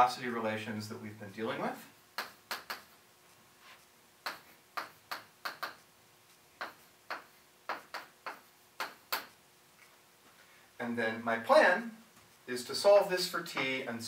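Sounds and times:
chalk tapping on chalkboard: 2.2s - 5.9s, 6.6s - 9.4s.

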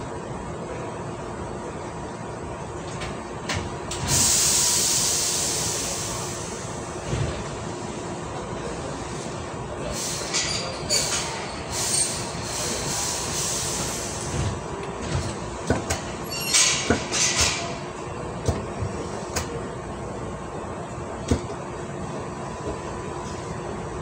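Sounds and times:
short bursts of hiss: 4.1s - 6.4s.

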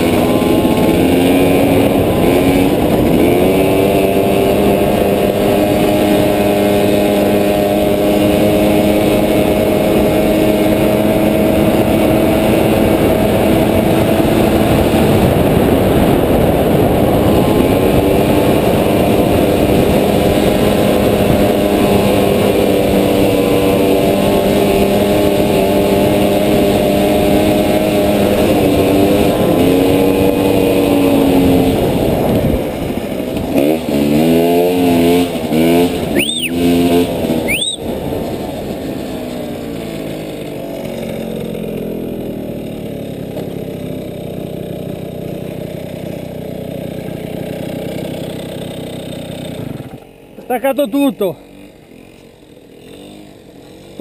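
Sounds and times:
rough wind noise: 0.0s - 23.8s
moped engine running: 0.0s - 54.0s.

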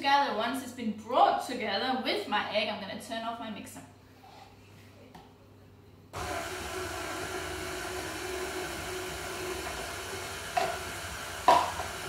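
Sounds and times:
stand mixer running: 6.2s - 12.0s.

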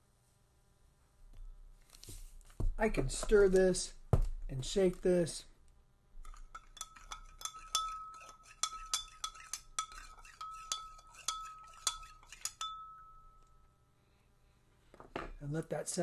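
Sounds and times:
metal spoon clinking on glass: 6.2s - 13.6s
glass ringing: 6.2s - 13.8s.

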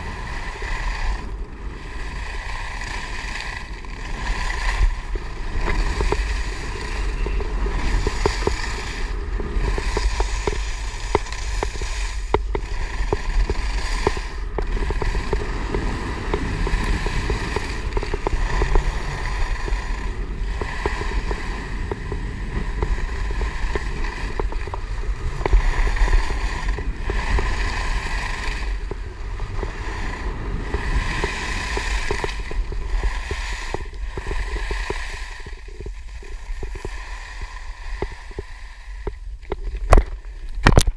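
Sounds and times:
wind buffeting microphone: 0.0s - 37.0s
skis carving on snow: 0.0s - 40.5s.

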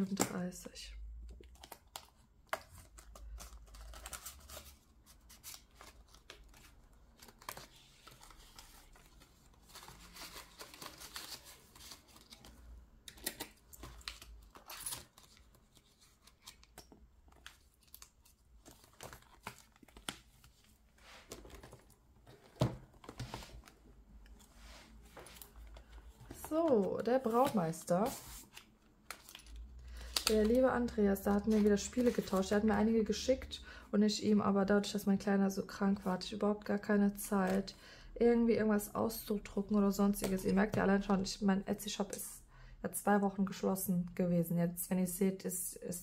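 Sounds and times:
paper and plastic rustling: 1.4s - 32.6s.

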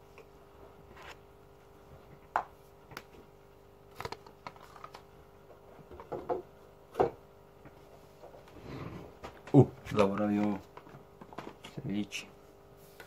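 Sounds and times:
faint steady hum: 0.0s - 13.0s
plastic containers knocking and clicking: 5.8s - 7.2s.

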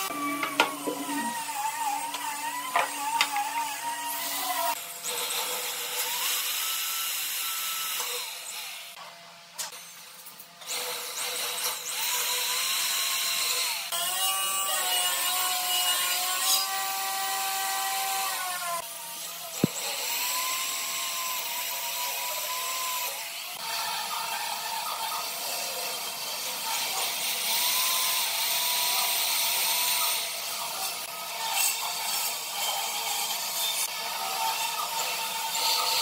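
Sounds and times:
power tool motor whine: 0.0s - 9.0s.

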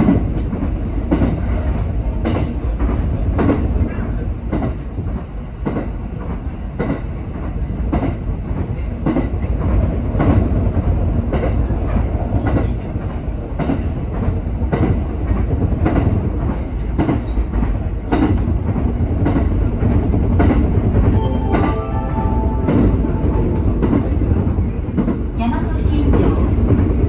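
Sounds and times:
train rolling rumble: 0.0s - 27.0s
train wheels clicking over rail joints: 13.6s - 21.1s.

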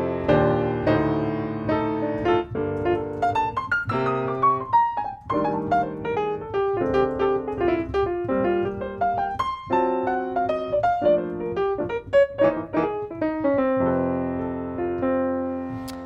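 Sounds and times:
jazz piano chords and melody: 0.0s - 16.0s.

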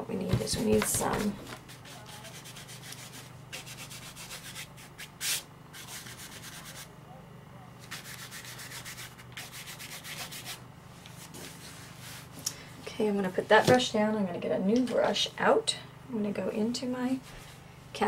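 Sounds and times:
stencil brush scrubbing: 0.5s - 6.9s, 7.8s - 10.6s.

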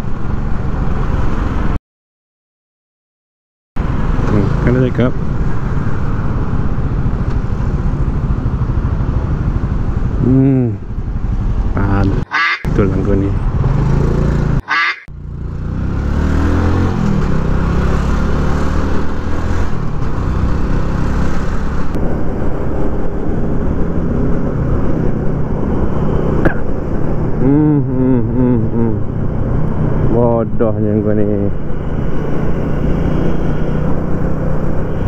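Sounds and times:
motorcycle engine running: 4.5s - 16.2s.

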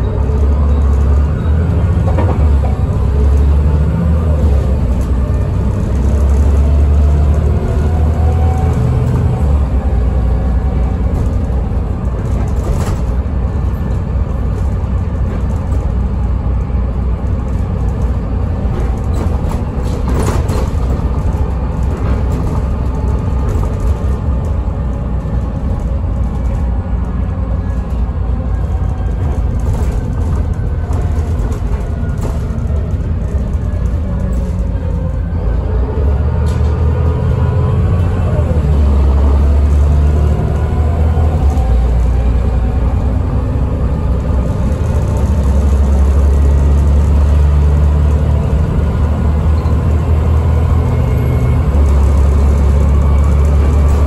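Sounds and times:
bus body knocks and rattles: 0.0s - 35.4s
diesel engine rumble: 0.0s - 54.0s.

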